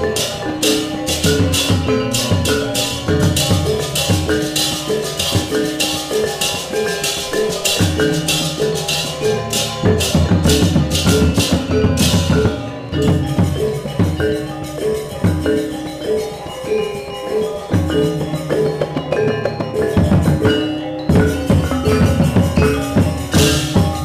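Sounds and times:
crisp metallic clash beat: 0.0 - 24.0
gong ensemble playing: 0.0 - 24.0.

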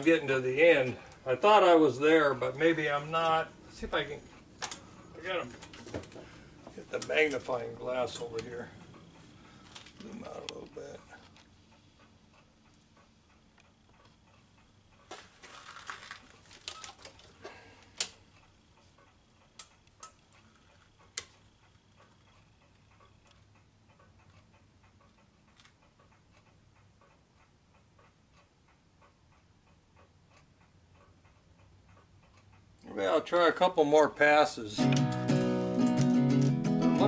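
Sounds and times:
faint regular ticking: 0.0 - 15.2, 16.2 - 33.5
lamp clattering and clicking: 4.6 - 4.9.

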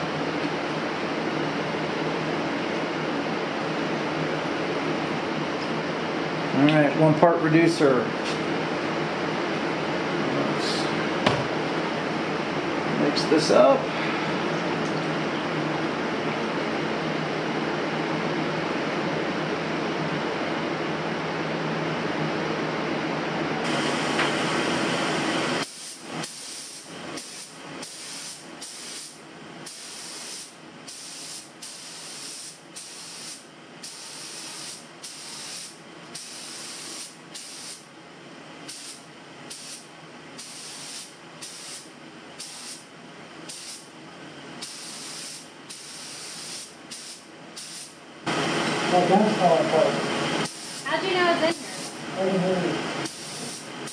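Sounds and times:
paint spray gun hissing: 25.6 - 37.8, 38.7 - 39.8, 40.4 - 42.8, 43.5 - 43.8, 44.6 - 48.0, 50.4 - 50.9, 51.5 - 52.0, 53.0 - 53.9
loud steady noise: 47.8 - 53.9.

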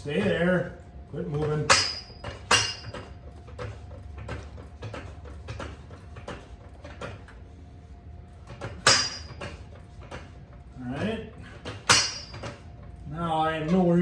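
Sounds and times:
loud metal clank: 11.6 - 12.6.

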